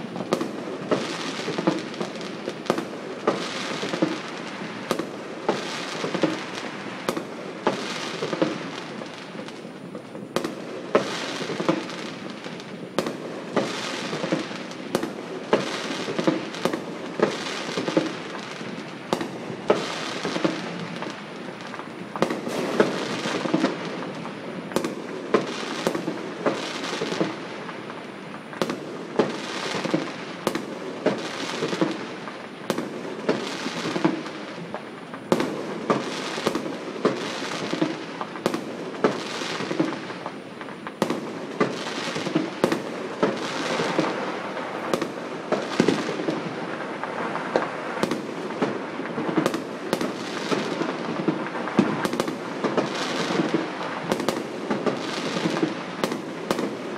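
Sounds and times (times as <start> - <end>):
distant firework bursts and pops: 0.0 - 56.9
sharp firework bangs: 13.0 - 27.4.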